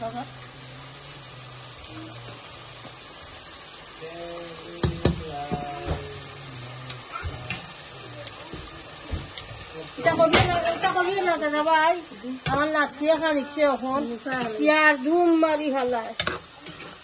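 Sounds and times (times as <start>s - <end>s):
onions sizzling in a pot: 0.0s - 17.0s.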